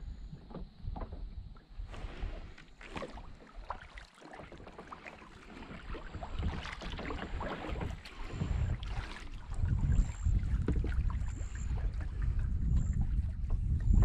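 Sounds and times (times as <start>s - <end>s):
kayak paddle splashing: 0.3s - 14.0s
wind buffeting microphone: 5.6s - 14.0s.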